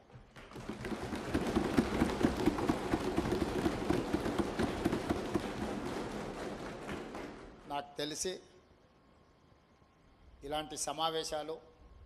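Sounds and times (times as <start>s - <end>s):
thumping on desks: 0.0s - 7.7s.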